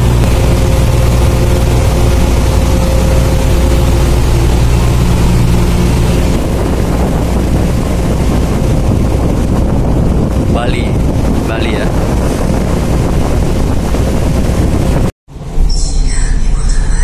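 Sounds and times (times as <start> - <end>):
ferry engines droning: 0.0 - 8.9
wind and water rushing: 0.0 - 15.1.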